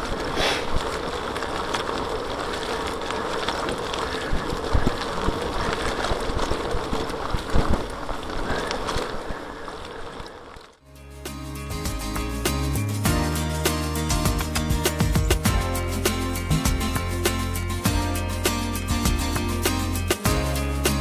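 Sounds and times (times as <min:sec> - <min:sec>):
bicycle tyres on dirt trail: 0:00.0 - 0:10.8.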